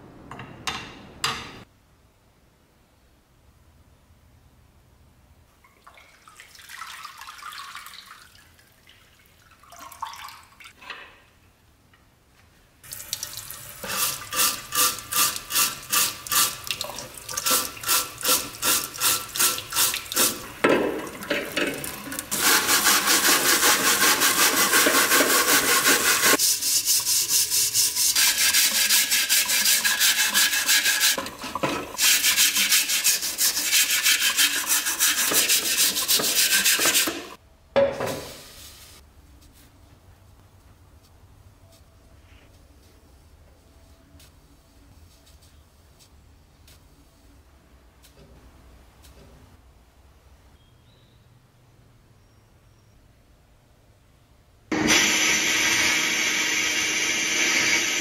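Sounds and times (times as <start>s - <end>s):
liquid dripping off metal: 12.9s - 13.9s
running tap water: 12.9s - 37.3s
wire brush scrubbing metal: 13.8s - 16.6s, 17.4s - 20.5s, 22.3s - 37.4s.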